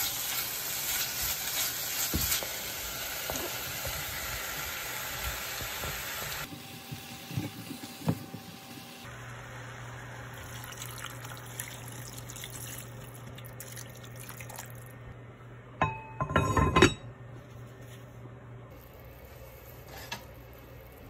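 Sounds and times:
water pouring into a pot: 0:10.3 - 0:14.9
cast-iron lid clanking: 0:15.8 - 0:17.0.

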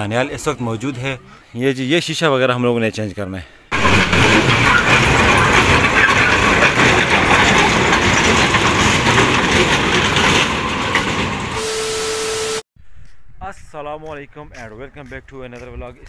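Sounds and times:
miniature train running on track: 0:03.7 - 0:11.6.

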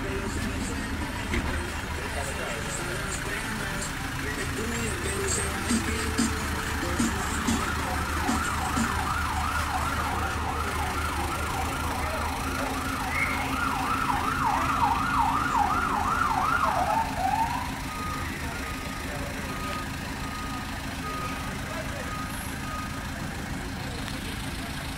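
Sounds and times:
emergency siren yelping: 0:04.6 - 0:24.0.

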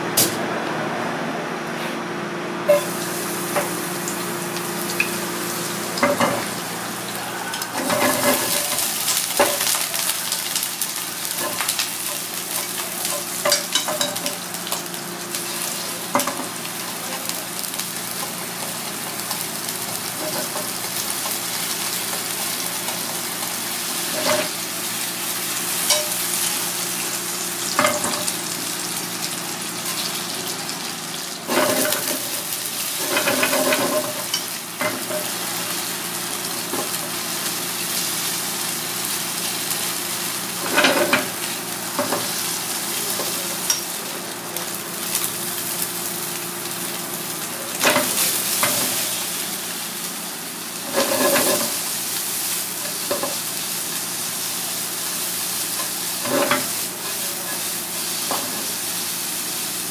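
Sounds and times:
garlic sizzling in oil: 0:02.7 - 0:59.9.

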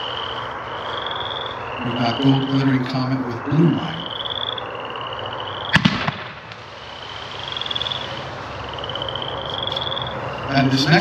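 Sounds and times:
small firework reports: 0:01.8 - 0:04.1, 0:05.7 - 0:08.2
firework bang: 0:05.7 - 0:06.7.

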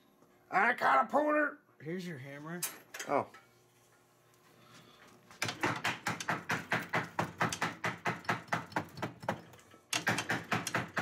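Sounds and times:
hammer striking metal wheel: 0:05.4 - 0:11.0.

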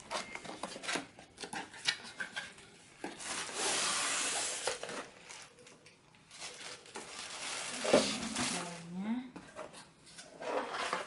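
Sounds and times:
cardboard scraping rub: 0:03.2 - 0:05.0.

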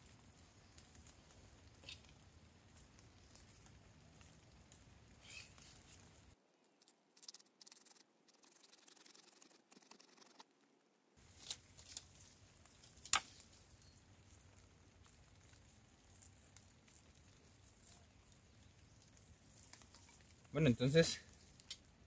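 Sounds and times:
pruning shears snipping: 0:12.9 - 0:13.4.

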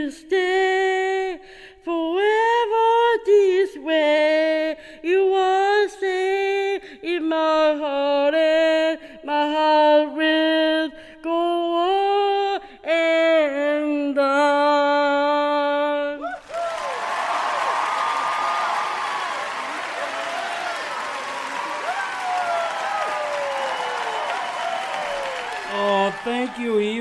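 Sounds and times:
woman singing a cappella: 0:00.0 - 0:16.3
singer breathing: 0:01.4 - 0:01.8, 0:04.8 - 0:05.0, 0:11.0 - 0:11.2.

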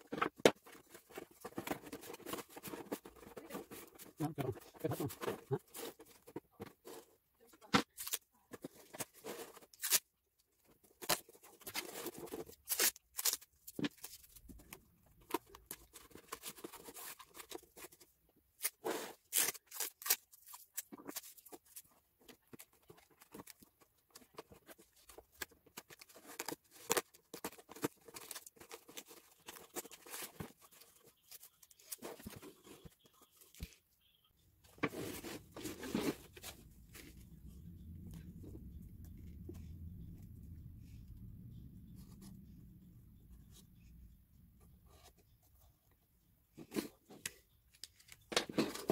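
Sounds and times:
cardboard rustling and scraping: 0:00.0 - 0:10.0, 0:20.4 - 0:33.8, 0:34.6 - 0:40.4.

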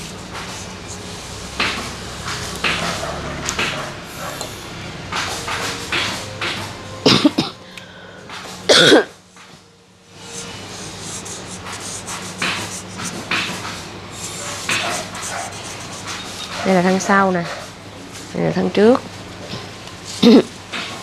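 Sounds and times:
marker scratching on paper: 0:00.2 - 0:04.4, 0:10.3 - 0:17.7
person coughing: 0:07.0 - 0:07.6, 0:08.7 - 0:09.2, 0:20.2 - 0:20.5.

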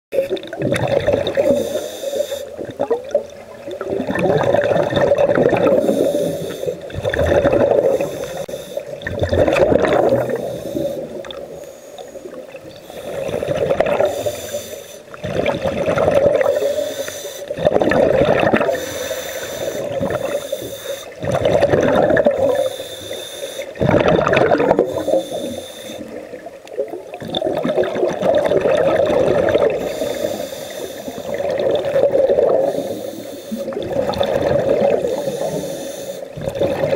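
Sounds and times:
exhaled bubbles burbling: 0:00.1 - 0:01.8, 0:02.5 - 0:11.6, 0:12.2 - 0:14.3, 0:15.1 - 0:16.8, 0:17.5 - 0:18.9, 0:19.6 - 0:22.8, 0:23.7 - 0:30.4, 0:31.1 - 0:32.9, 0:33.6 - 0:35.6, 0:36.2 - 0:36.9
regulator breathing hiss: 0:01.4 - 0:02.6, 0:05.8 - 0:06.9, 0:07.9 - 0:09.0, 0:10.3 - 0:15.2, 0:16.4 - 0:17.6, 0:18.7 - 0:21.2, 0:22.6 - 0:23.8, 0:24.9 - 0:26.2, 0:29.8 - 0:31.4, 0:32.6 - 0:33.8, 0:35.0 - 0:36.4.

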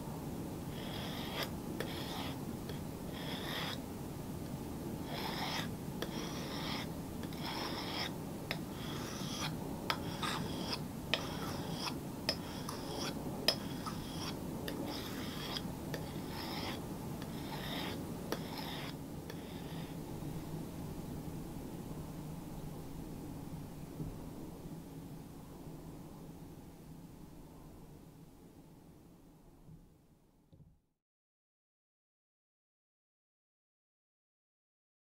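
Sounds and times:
knife scraping on sharpening stone: 0:00.8 - 0:02.4, 0:03.2 - 0:03.8, 0:05.1 - 0:20.0.

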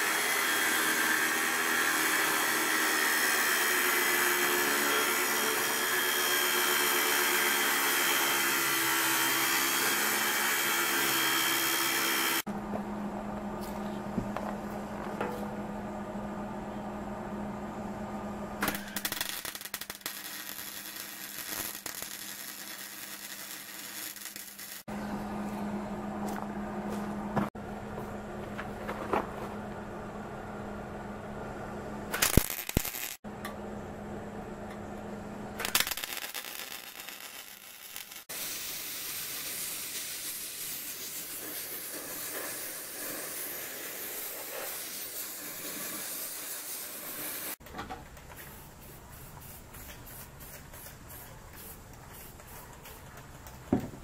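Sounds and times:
angle grinder grinding steel: 0:00.0 - 0:12.4
arc welder crackling and hissing: 0:00.0 - 0:12.5, 0:18.6 - 0:24.9, 0:32.1 - 0:33.2, 0:35.6 - 0:47.6, 0:48.2 - 0:54.0.

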